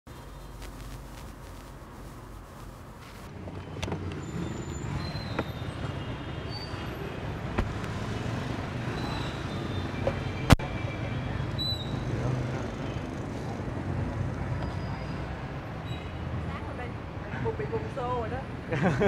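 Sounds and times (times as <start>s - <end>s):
motorbike and car engines passing: 3.2s - 19.0s.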